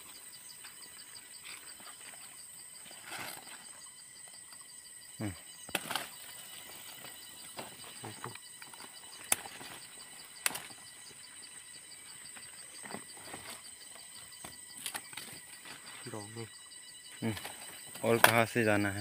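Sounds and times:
insects chirping: 0.0 - 19.0
plant stalks cracking: 5.7 - 6.2, 8.7 - 9.8, 10.4 - 10.8
knocks of handled foliage: 5.7 - 11.0, 17.2 - 18.8.

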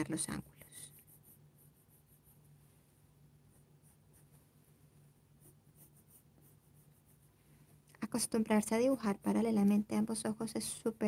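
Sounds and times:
pencil scratching on paper: 0.0 - 2.7, 3.3 - 7.8.

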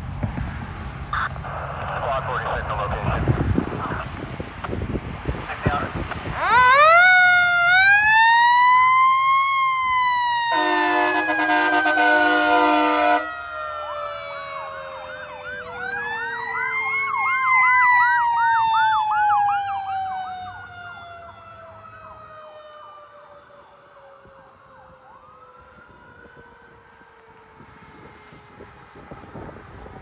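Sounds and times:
wailing siren: 6.0 - 30.0
fast yelping siren: 6.4 - 26.8
fire truck horn blasts: 10.5 - 13.4.

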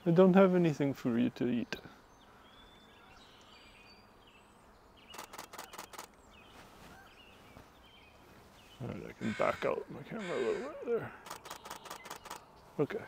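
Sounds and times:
faint bird chirps: 1.2 - 12.8
camera shutter clicks: 5.1 - 6.2, 11.2 - 12.5.

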